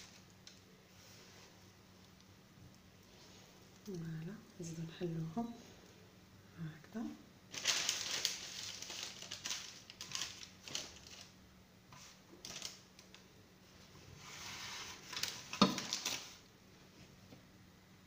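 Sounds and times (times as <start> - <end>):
seeds rustling in a metal tray: 0.0 - 1.7, 7.5 - 16.5.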